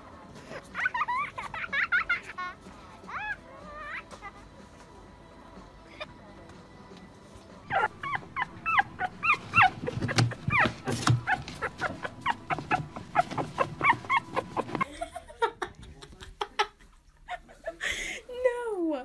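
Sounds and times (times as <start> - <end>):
puppy whimpering and yipping: 3.0 - 4.4, 7.7 - 14.8.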